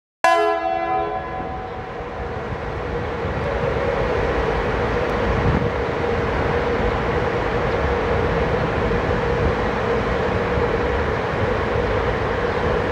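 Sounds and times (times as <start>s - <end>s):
locomotive horn: 0.2s - 2.0s
electric locomotive running: 1.2s - 12.9s.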